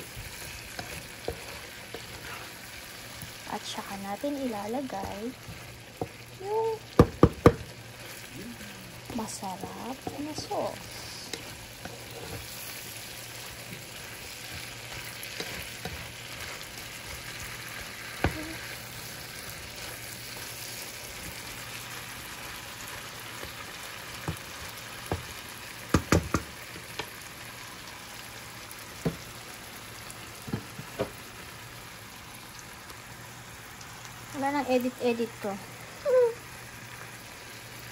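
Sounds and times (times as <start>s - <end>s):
shrimp sizzling in a frying pan: 0.0s - 37.9s
spatula knocking against pan: 7.0s - 7.6s, 25.9s - 26.5s.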